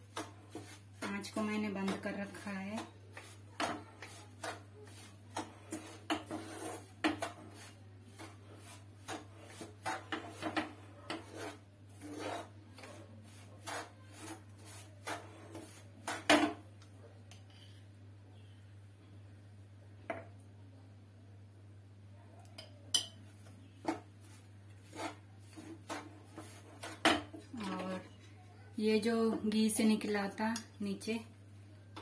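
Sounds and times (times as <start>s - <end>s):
spatula scraping frying pan: 0.0s - 16.6s, 23.8s - 27.9s.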